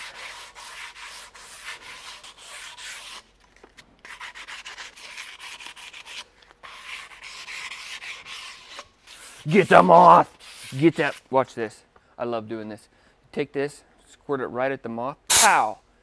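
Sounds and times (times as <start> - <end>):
sandpaper rasping on bow limb: 0.0 - 3.3, 4.0 - 11.2, 15.3 - 15.7.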